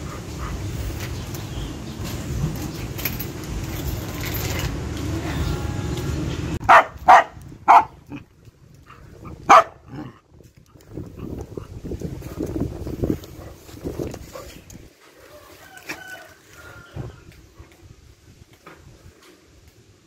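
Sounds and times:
steady low rumbling: 0.0s - 14.9s
dog barking: 6.6s - 8.0s, 9.2s - 10.1s.

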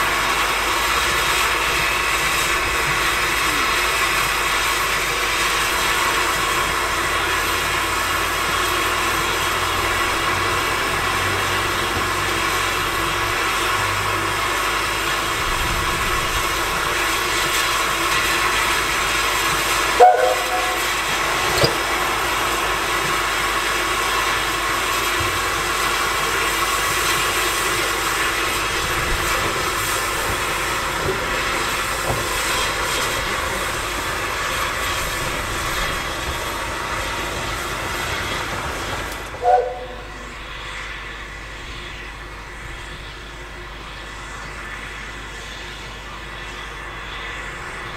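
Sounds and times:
steam locomotive hissing: 0.0s - 47.9s
locomotive whistle toot: 19.7s - 21.9s, 39.4s - 40.3s.

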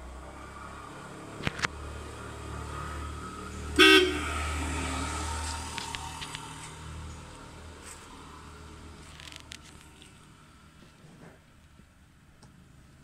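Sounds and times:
vehicle engine rumbling past: 0.0s - 11.5s
horn toot: 3.8s - 4.4s.

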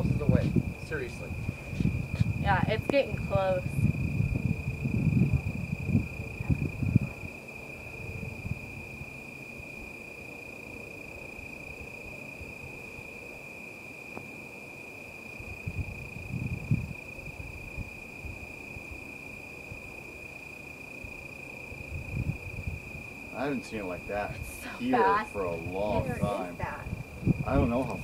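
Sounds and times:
crickets trilling: 0.0s - 28.0s
low muffled sounds: 23.4s - 28.0s.

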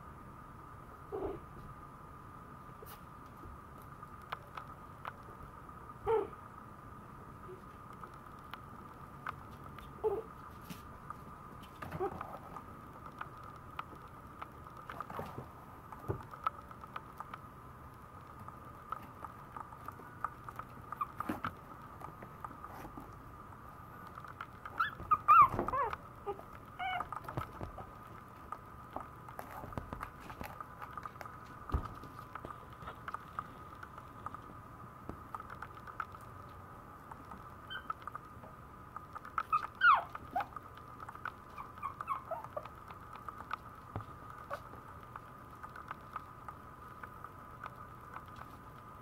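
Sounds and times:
faint steady hum: 0.0s - 49.0s
puppy whimpering: 1.1s - 1.4s, 6.1s - 6.4s, 10.0s - 10.3s, 21.0s - 21.4s, 24.8s - 27.2s, 37.7s - 38.0s, 39.4s - 40.6s, 41.5s - 42.7s.

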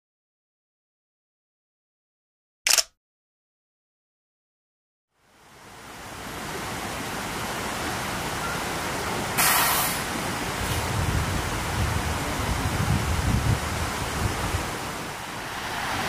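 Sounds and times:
brief loud hiss: 9.4s - 10.8s
wind noise on microphone: 10.6s - 16.0s.

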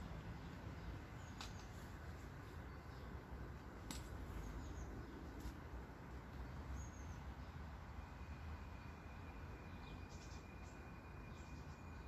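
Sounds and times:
faint bird chirps: 6.4s - 12.0s.

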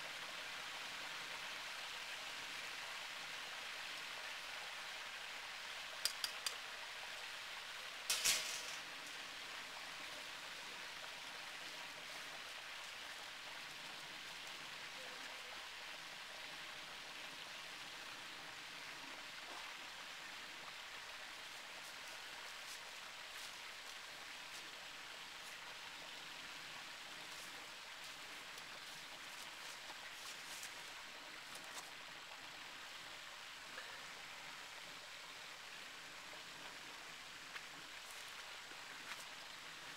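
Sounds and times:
metal clatter: 8.1s - 8.9s.

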